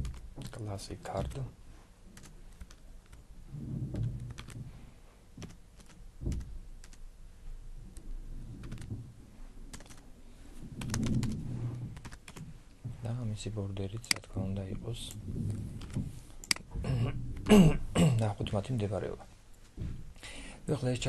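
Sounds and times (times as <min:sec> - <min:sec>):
low muffled thuds: 0:03.5 - 0:04.8, 0:06.2 - 0:06.7, 0:10.8 - 0:13.3, 0:19.7 - 0:20.2.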